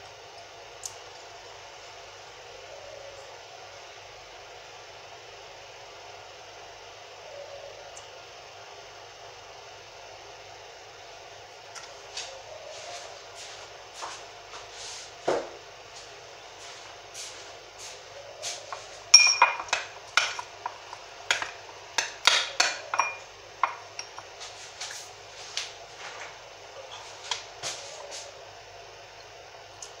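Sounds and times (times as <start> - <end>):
metal spoon clinking in glass: 19.2 - 20.4, 22.2 - 24.2.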